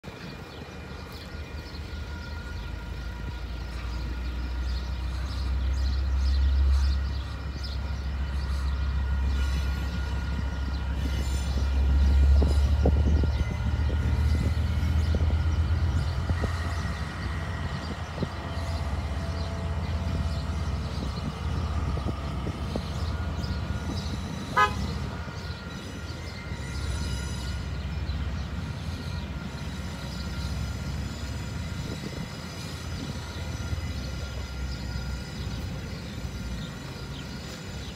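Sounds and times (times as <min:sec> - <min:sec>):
diesel locomotive engine rumbling: 0:00.0 - 0:37.9
train horn toot: 0:23.1 - 0:27.8.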